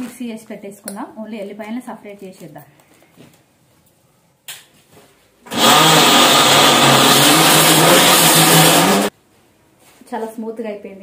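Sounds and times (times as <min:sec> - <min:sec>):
mixer grinder running: 0:05.5 - 0:09.1.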